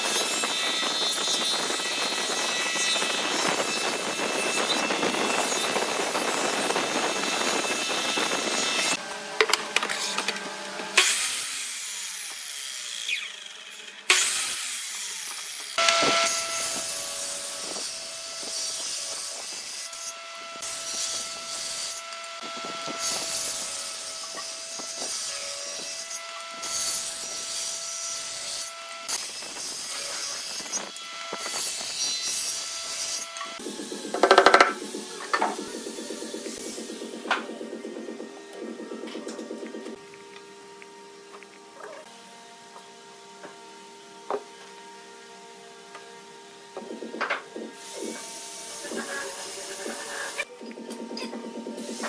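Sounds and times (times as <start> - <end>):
table saw cutting wood: 0.0 - 52.0
thickness planer planing boards: 32.9 - 39.9.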